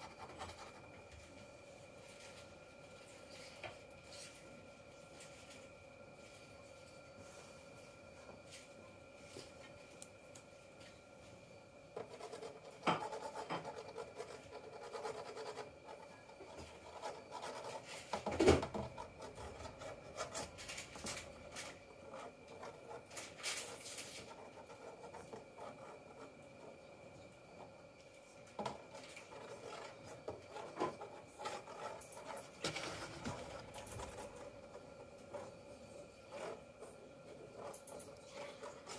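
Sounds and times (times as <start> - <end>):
scratching on cardboard: 0.0 - 1.1, 12.0 - 26.9, 28.6 - 38.9.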